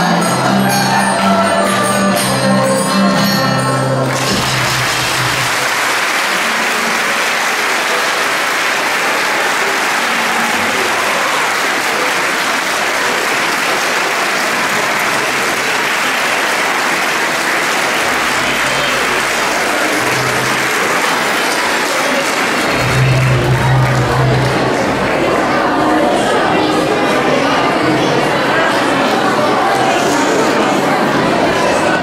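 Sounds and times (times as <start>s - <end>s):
audience applauding: 4.0s - 26.6s
recorders and guitar playing: 22.7s - 25.3s.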